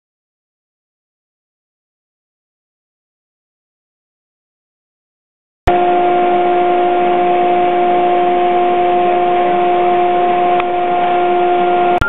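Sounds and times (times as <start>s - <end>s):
router spindle high-pitched whine: 5.7s - 12.0s.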